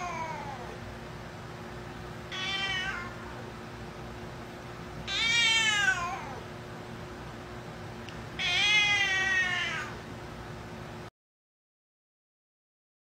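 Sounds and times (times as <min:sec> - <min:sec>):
cat meowing loudly: 0:02.3 - 0:03.3, 0:05.1 - 0:06.4, 0:08.4 - 0:10.0.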